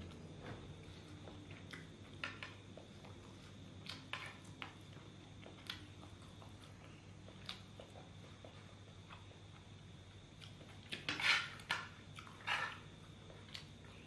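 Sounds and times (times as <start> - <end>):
low steady hum: 0.0 - 14.0
person chewing: 1.0 - 9.4, 10.4 - 11.1.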